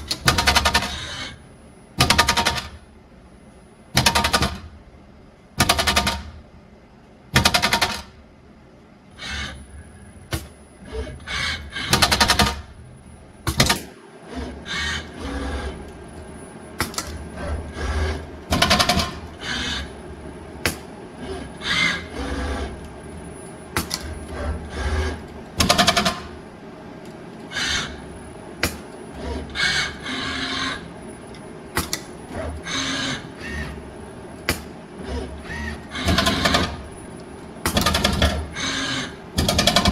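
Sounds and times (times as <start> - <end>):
low steady hum: 0.0 - 39.9
metal parts rattling on vibrating tray: 39.4 - 39.9.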